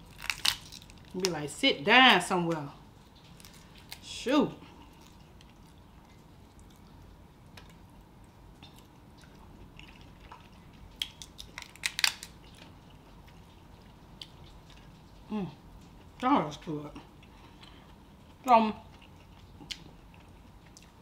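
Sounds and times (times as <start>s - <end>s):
crab shells cracking: 0.0s - 1.5s, 10.0s - 12.7s
chewing: 4.6s - 16.0s, 17.0s - 21.0s.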